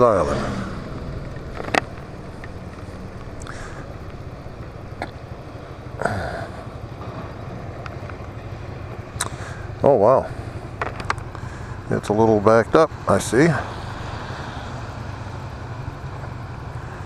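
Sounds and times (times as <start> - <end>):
scooter engine running: 0.0 - 11.8.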